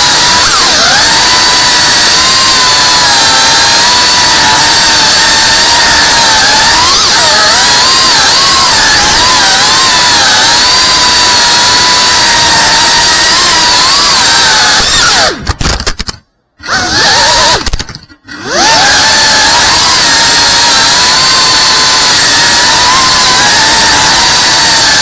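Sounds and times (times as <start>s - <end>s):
drone motors whining: 0.0s - 25.0s.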